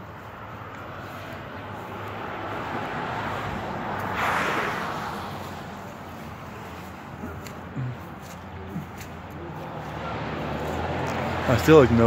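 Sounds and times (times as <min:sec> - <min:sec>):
car driving past: 0:01.7 - 0:06.0.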